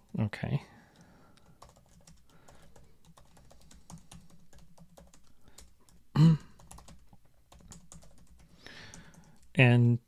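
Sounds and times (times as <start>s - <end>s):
typing on computer keyboard: 0.9s - 9.6s.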